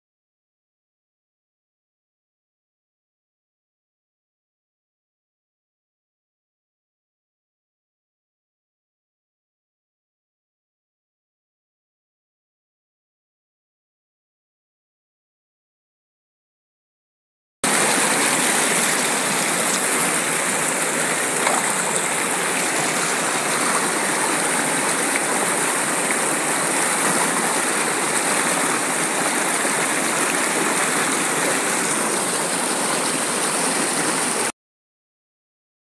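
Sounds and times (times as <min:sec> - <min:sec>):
stream rushing over rocks: 0:17.6 - 0:34.5.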